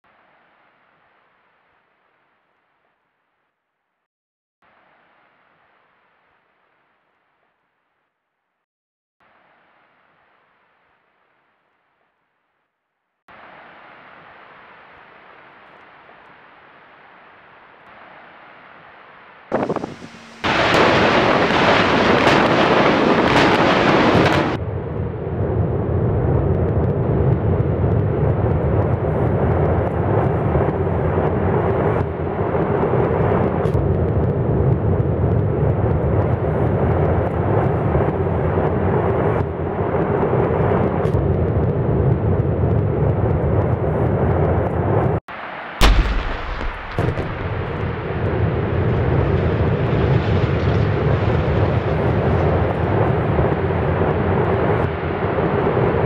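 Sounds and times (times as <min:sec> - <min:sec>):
steady rushing noise: 0:19.5 - 0:21.3, 0:45.8 - 0:49.0
sharp bang: 0:45.8 - 0:48.4
demolition charges exploding: 0:45.8 - 0:51.7
rumble of building collapse: 0:45.8 - 0:53.5.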